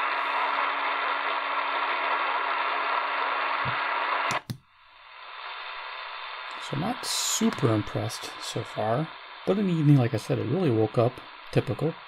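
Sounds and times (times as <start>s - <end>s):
radio static hiss: 0.0s - 12.0s
radio tuning button clicks: 3.6s - 4.7s.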